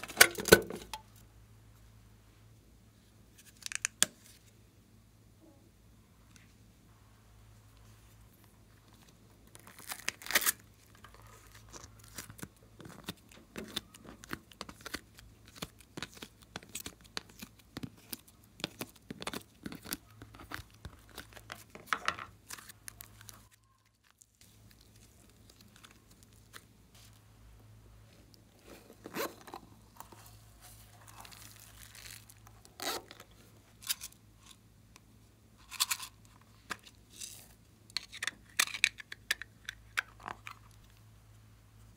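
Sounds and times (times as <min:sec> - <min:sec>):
clay crackling and tearing: 0:08.4 - 0:27.1, 0:28.3 - 0:34.2.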